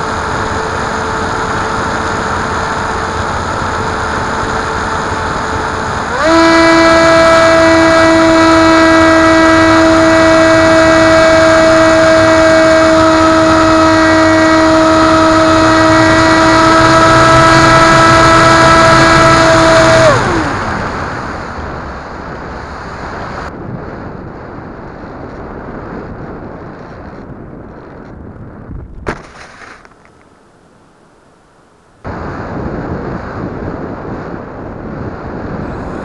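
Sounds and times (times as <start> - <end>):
electric motor whine: 0.0 - 22.0
wind rush: 0.0 - 30.1, 32.0 - 36.0.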